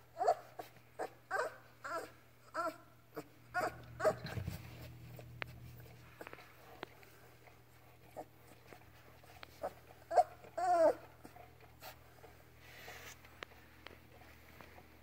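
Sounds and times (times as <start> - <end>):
puppy whimpering: 0.0 - 6.4, 8.0 - 13.2.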